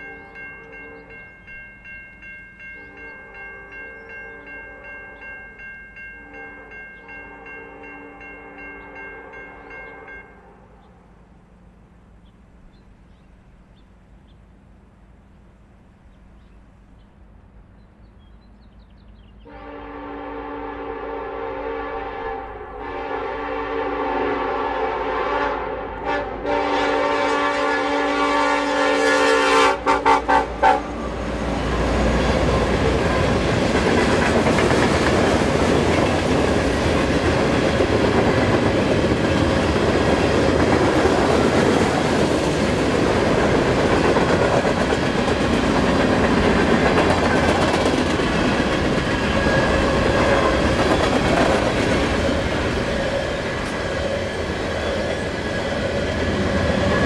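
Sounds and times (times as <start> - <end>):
locomotive air horn blasts: 2.8 - 5.2, 6.2 - 10.9, 19.4 - 31.3
train wheels clattering on rails: 29.8 - 57.0.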